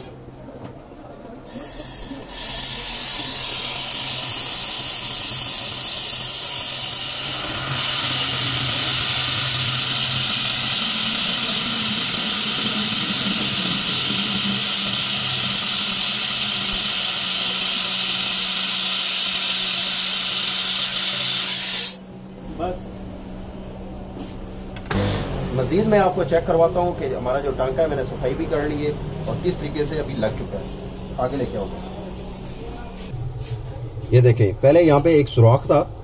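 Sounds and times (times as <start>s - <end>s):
gas torch hissing: 1.5s - 22.1s.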